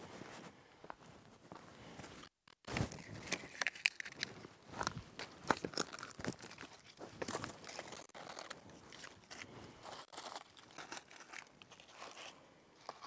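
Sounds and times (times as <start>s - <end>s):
twigs snapping and crackling: 2.2s - 12.2s.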